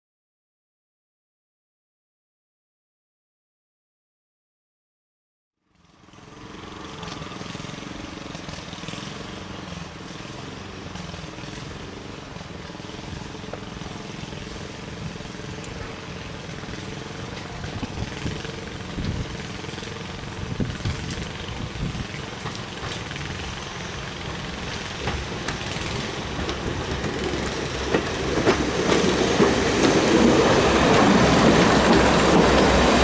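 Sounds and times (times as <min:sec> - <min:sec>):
diesel train engines running: 0:05.7 - 0:33.0.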